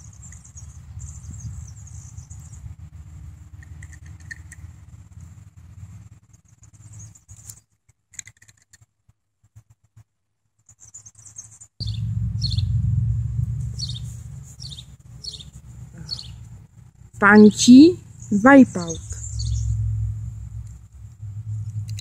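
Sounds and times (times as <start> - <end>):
bird chirping: 0.0 - 2.7, 10.7 - 16.6, 17.2 - 22.0
low microphone rumble: 11.8 - 22.0.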